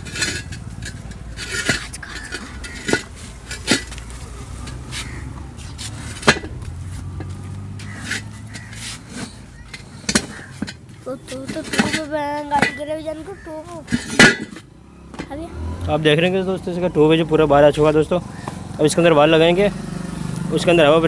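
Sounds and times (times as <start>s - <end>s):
rubber scuffing on rubber and metal: 2.9s - 12.8s.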